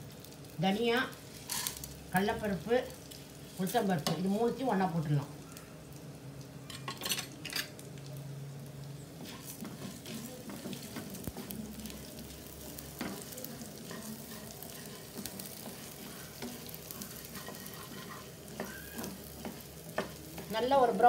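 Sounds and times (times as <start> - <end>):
seeds sizzling in oil: 0.0 - 21.0
spatula scraping pan: 9.2 - 21.0.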